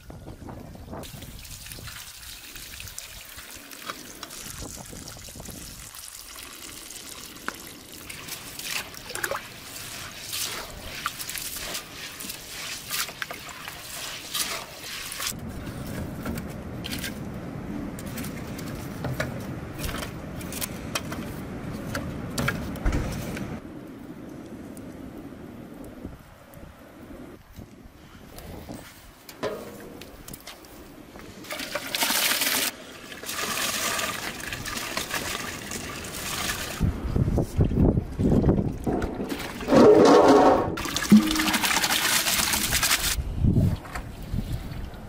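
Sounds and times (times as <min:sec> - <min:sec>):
water running and splashing: 0:01.0 - 0:16.0, 0:31.4 - 0:36.9, 0:40.8 - 0:43.2
hands stirring wet rice: 0:07.1 - 0:16.0.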